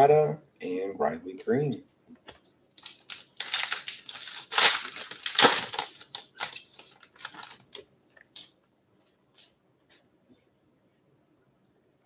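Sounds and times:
wrapper tearing and crinkling: 0:02.8 - 0:07.8.

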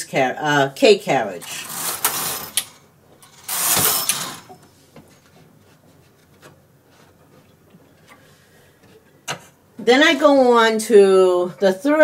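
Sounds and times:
knitting machine carriage rasping: 0:03.3 - 0:04.5.

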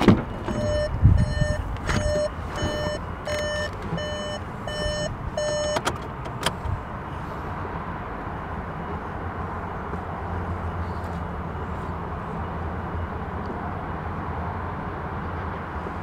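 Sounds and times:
electronic warning beeps: 0:00.3 - 0:05.8.

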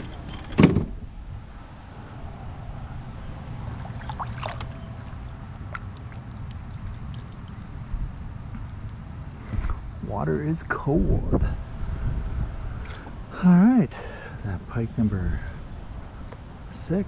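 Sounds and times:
water splashing against kayak: 0:03.7 - 0:07.7
sharp splash or knock: 0:03.8 - 0:04.8.

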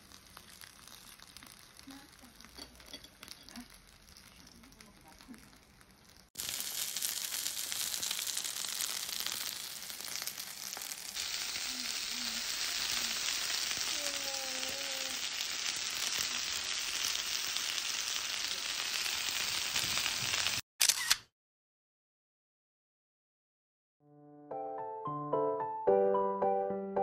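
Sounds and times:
dumplings sizzling in a pan: 0:00.0 - 0:20.6.

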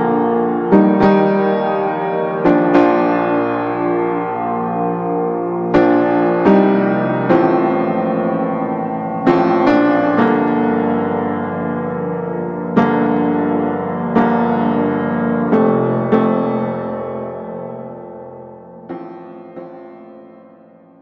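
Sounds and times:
piano notes and chords: 0:00.0 - 0:21.0.

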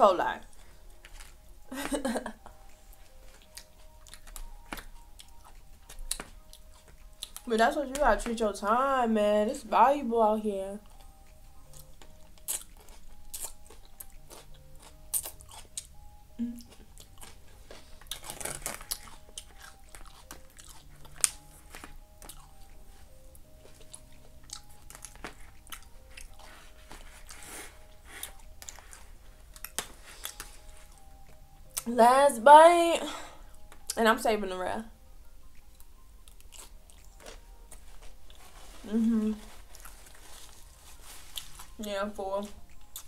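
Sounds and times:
faint background music: 0:00.0 - 0:43.0
chewing and crunching food: 0:00.4 - 0:08.4, 0:10.8 - 0:31.9, 0:35.4 - 0:43.0.

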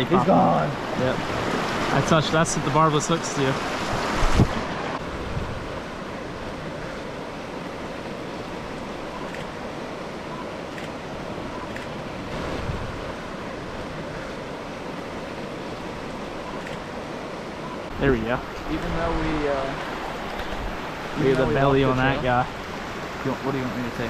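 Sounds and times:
stream water rushing: 0:00.0 - 0:24.0
wind rumbling on microphone: 0:03.5 - 0:09.4, 0:11.0 - 0:16.7.

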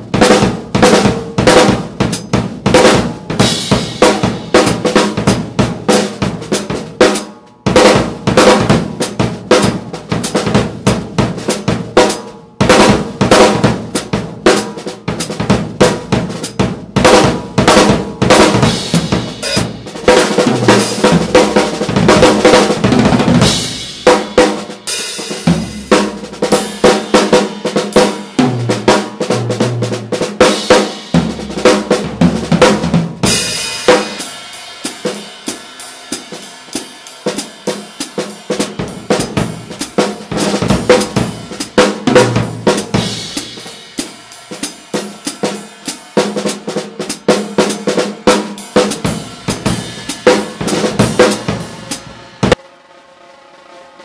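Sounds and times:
bass drum: 0:00.0 - 0:06.8, 0:15.1 - 0:27.2, 0:31.1 - 0:34.2, 0:38.7 - 0:44.0, 0:48.8 - 0:52.6
snare drum hits: 0:00.0 - 0:29.2
tom hits: 0:17.1 - 0:24.6
cymbal hits: 0:17.8 - 0:22.4, 0:33.2 - 0:42.0, 0:47.2 - 0:52.7.

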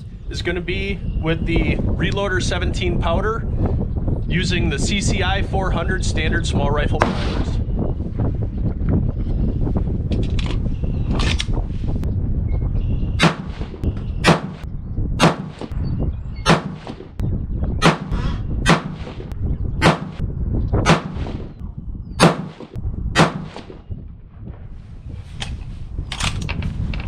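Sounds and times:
low wind rumble: 0:00.0 - 0:27.0
rifle shots: 0:13.2 - 0:14.6, 0:15.2 - 0:15.7, 0:16.5 - 0:17.1, 0:17.8 - 0:20.2, 0:20.9 - 0:21.5, 0:22.2 - 0:23.8.

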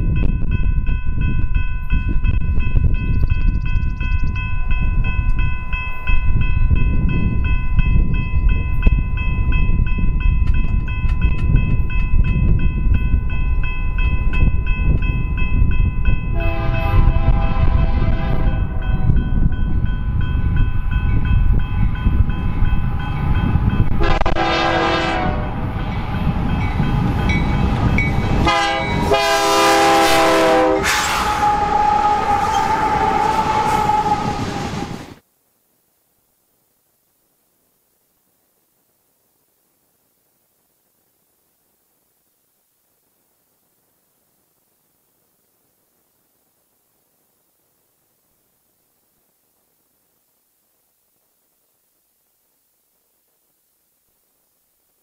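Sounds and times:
locomotive horn: 0:16.3 - 0:19.1, 0:24.0 - 0:25.7, 0:28.4 - 0:35.1.

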